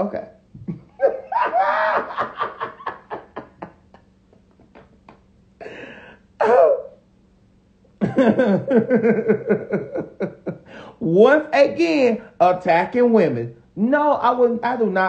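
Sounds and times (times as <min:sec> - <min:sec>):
man laughing: 0:00.6 - 0:05.8, 0:08.0 - 0:10.8
sharp breath: 0:10.6 - 0:11.0.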